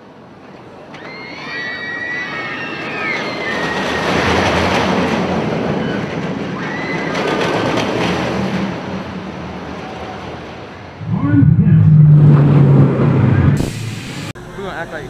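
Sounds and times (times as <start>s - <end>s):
train rumbling on rails: 2.9s - 14.3s.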